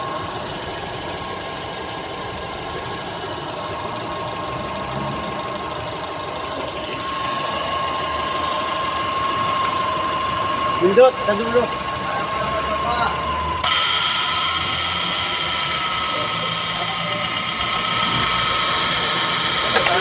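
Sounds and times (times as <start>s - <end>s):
car engine idling: 0.0s - 20.0s
high steady whine: 0.0s - 20.0s
steady grinding noise: 0.0s - 20.0s.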